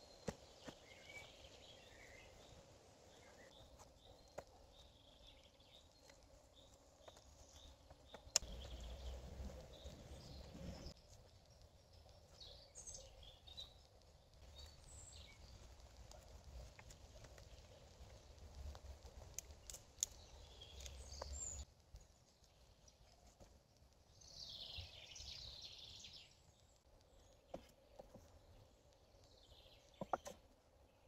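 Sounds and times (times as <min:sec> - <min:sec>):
faint bird chirps: 0:00.0 - 0:16.4.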